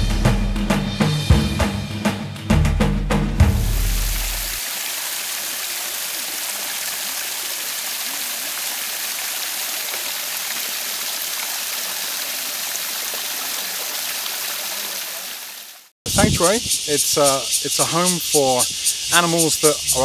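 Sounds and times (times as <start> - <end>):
stream splashing over stones: 3.7 - 15.9.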